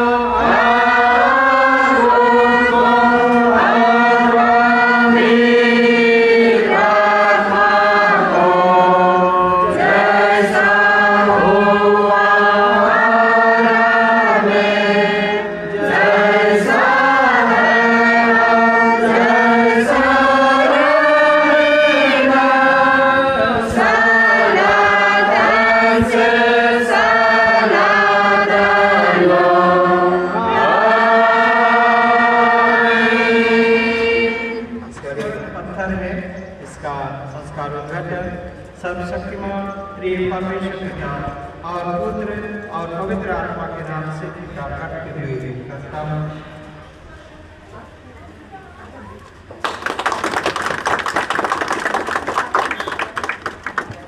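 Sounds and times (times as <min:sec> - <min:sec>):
congregation singing a hymn: 0:00.0 - 0:46.8.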